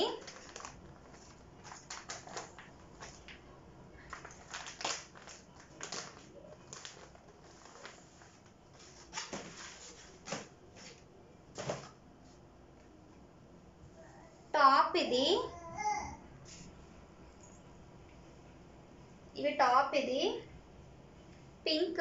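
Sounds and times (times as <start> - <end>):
plastic packaging crinkling: 0.0 - 3.4, 4.0 - 10.5.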